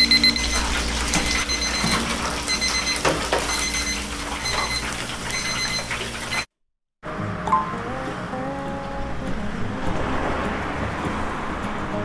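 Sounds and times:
deep fryer oil sizzling: 0.0 - 6.5
kitchen timers beeping: 0.0 - 6.5.

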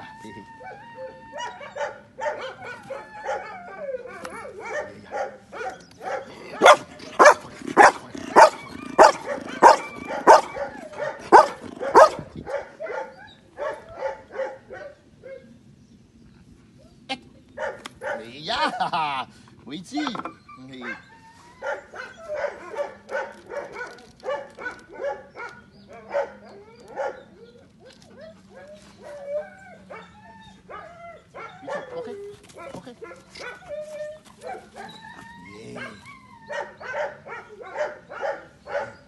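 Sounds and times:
dog barking: 1.4 - 3.5, 4.3 - 15.4, 17.6 - 18.3, 21.6 - 27.3, 31.4 - 32.1, 35.8 - 39.0
dog yipping: 5.6 - 14.6, 20.3 - 39.0
dog whining: 6.4 - 12.2, 20.0 - 37.9.

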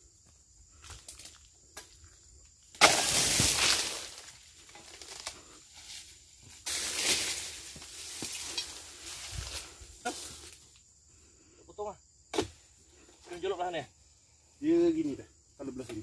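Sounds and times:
palm fronds rustling and crashing: 2.7 - 10.6.

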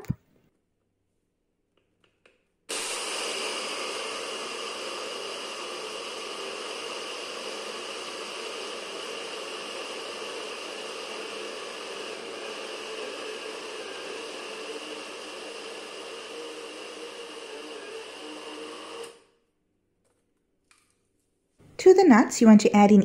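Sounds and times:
blender grinding peanuts: 2.7 - 19.3.

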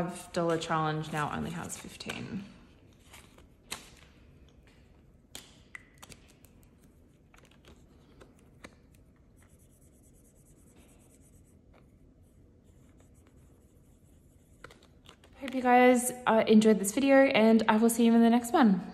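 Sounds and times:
marker rubbing on paper: 9.0 - 15.0.

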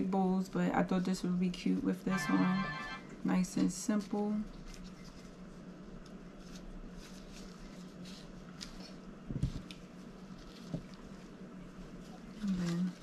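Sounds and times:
faint rustling of handling: 4.4 - 13.0.

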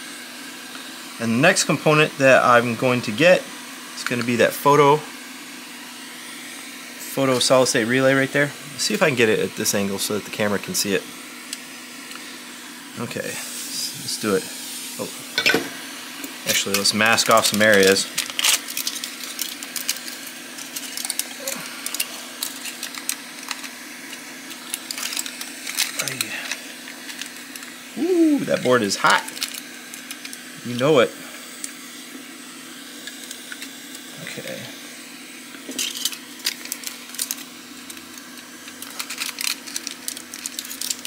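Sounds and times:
hot air station fan hum: 0.0 - 41.0
aluminium foil crinkling: 16.4 - 27.7, 28.5 - 30.4, 35.7 - 41.0.

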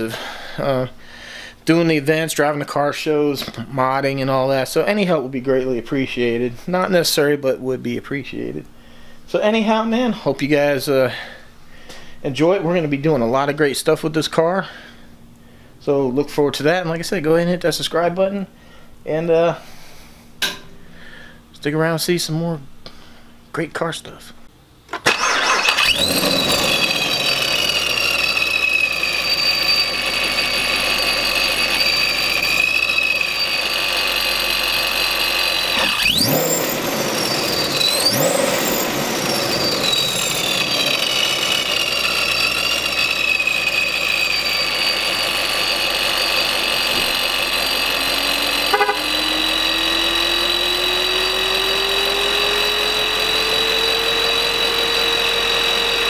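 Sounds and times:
supercharger whine: 24.9 - 56.0
engine throttle blips: 25.0 - 56.0
car engine idling: 25.1 - 56.0
low tone rising in pitch: 45.6 - 56.0.

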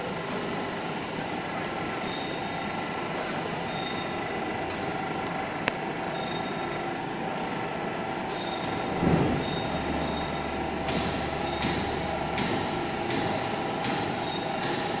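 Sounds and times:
electric gear drives whining: 8.4 - 14.5.

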